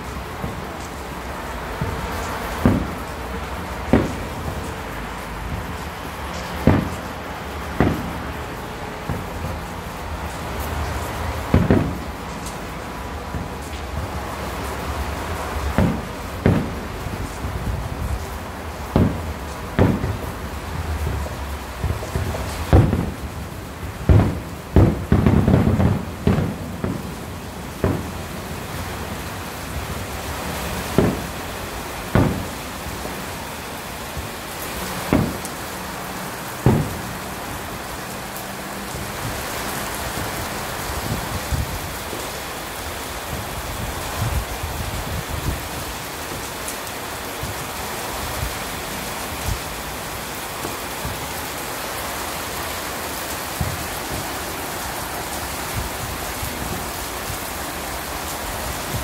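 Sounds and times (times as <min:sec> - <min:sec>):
distant firework bangs: 0:00.0 - 0:42.3, 0:53.2 - 0:57.4
heavy rain falling: 0:00.0 - 0:59.0.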